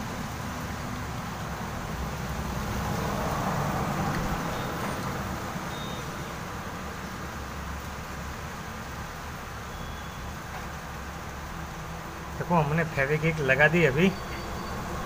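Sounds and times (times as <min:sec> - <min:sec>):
motor vehicle hum: 0:00.0 - 0:15.0
vehicle passing: 0:00.2 - 0:07.0.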